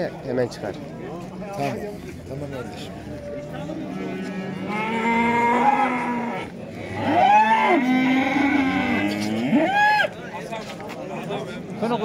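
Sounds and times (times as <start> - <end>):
cattle mooing: 4.0 - 9.7.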